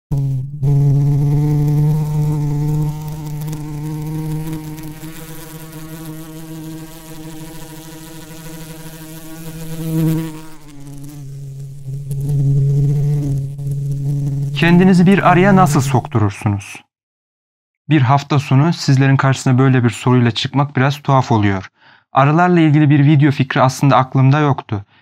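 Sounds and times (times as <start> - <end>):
bee buzzing: 0.1 - 16.0.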